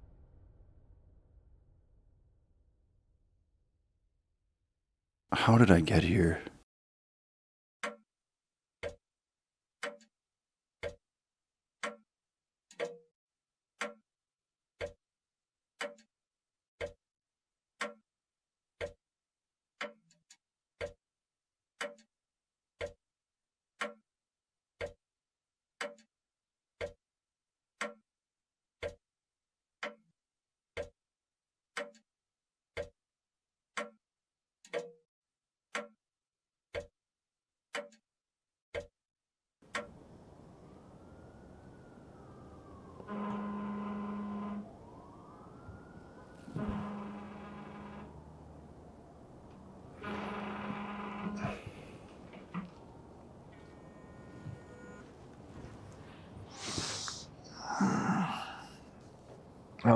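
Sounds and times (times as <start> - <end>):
clock ticking: 7.8 - 8.0, 8.8 - 9.0, 9.8 - 10.1, 10.8 - 11.0, 11.8 - 12.1, 12.7 - 13.0, 13.8 - 14.0, 14.8 - 15.0, 15.8 - 16.1, 16.8 - 17.0, 17.8 - 18.0, 18.8 - 19.0, 19.8 - 20.2, 20.8 - 21.0, 21.8 - 22.1, 22.8 - 23.0, 23.8 - 24.0, 24.8 - 25.0, 25.8 - 26.1, 26.8 - 27.0, 27.8 - 28.0, 28.8 - 29.0, 29.8 - 30.0, 30.8 - 31.0, 31.8 - 32.1, 32.7 - 33.0, 33.8 - 34.0, 34.7 - 35.0, 35.7 - 36.0, 36.7 - 36.9, 37.7 - 38.0, 38.7 - 38.9, 39.7 - 39.9.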